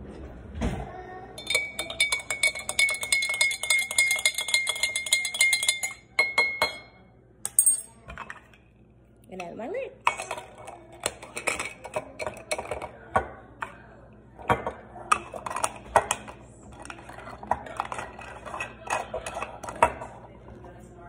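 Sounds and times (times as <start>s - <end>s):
metal straws clinking on glass jars: 1.4s - 6.8s.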